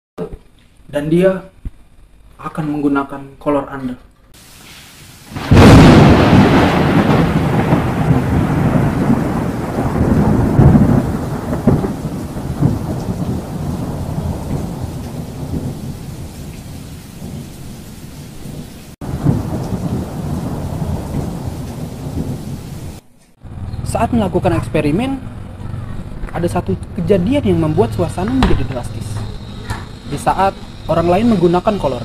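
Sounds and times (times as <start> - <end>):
rain: 4.4 - 23.0
thunder rolling: 4.4 - 23.0.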